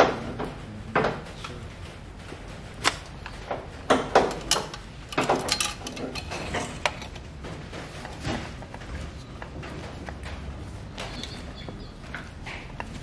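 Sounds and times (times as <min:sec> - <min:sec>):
metal tools clicking and knocking: 0:03.9 - 0:07.3.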